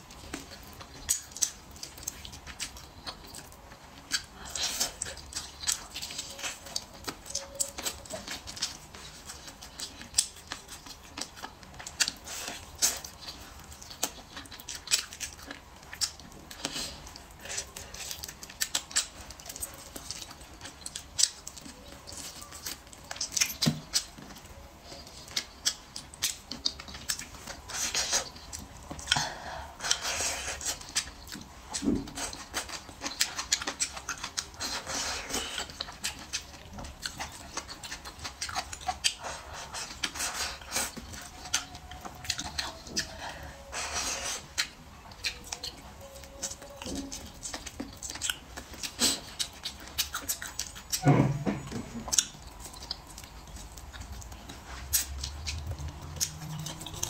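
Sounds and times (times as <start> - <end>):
wet chewing: 0.0 - 57.0
lip smacks: 51.9 - 57.0.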